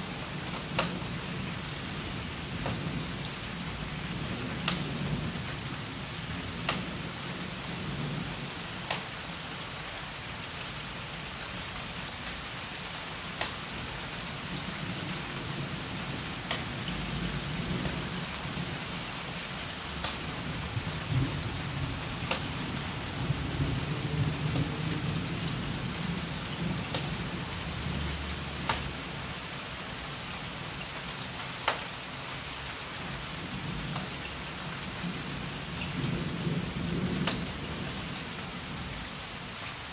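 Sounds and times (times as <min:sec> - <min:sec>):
steady rain: 0:00.0 - 0:39.9
sharp drip ticks: 0:00.6 - 0:01.0, 0:04.6 - 0:04.9, 0:06.6 - 0:07.0, 0:08.8 - 0:09.1, 0:13.4 - 0:13.6, 0:16.4 - 0:16.8, 0:20.0 - 0:20.3, 0:22.2 - 0:22.6, 0:26.8 - 0:27.2, 0:28.6 - 0:29.0, 0:31.6 - 0:31.9, 0:37.2 - 0:37.5
distant thunder rumbling: 0:19.9 - 0:29.3.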